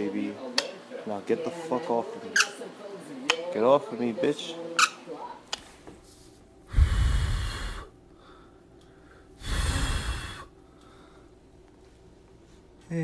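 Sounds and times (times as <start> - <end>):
heavy breaths on microphone: 6.1 - 11.4.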